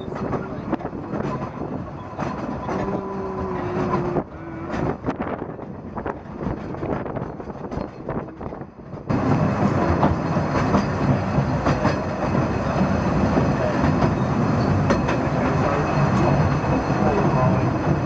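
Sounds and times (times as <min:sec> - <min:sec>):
wind noise on microphone: 0:00.0 - 0:15.1
railway carriage rumbling on track: 0:00.0 - 0:18.0
wheels clicking over rail joints: 0:00.0 - 0:18.0.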